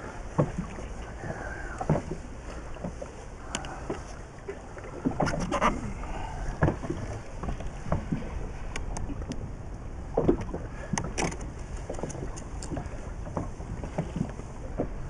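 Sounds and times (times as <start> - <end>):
water lapping against boat: 0.0 - 15.0
sharp knocks and clicks: 10.2 - 15.0.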